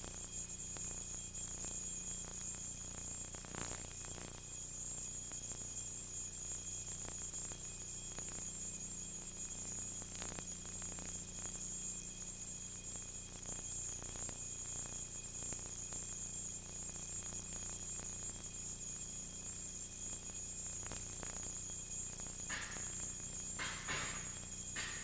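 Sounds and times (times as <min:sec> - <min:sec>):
electrical hum: 0:22.5 - 0:25.0.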